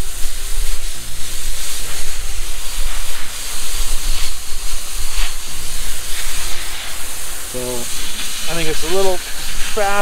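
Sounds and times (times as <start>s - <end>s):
hose nozzle spraying water: 0.0s - 10.0s.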